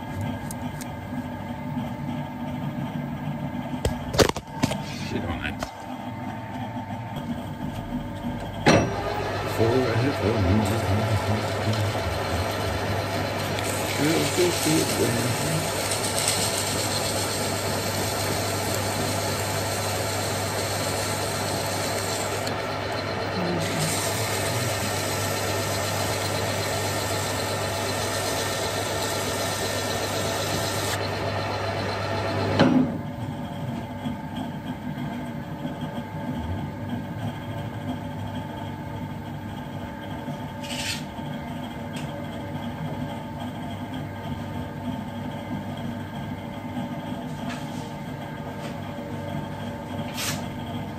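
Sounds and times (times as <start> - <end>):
metal lathe running: 6.2 - 50.9
metal scraping on lathe: 8.9 - 31.0.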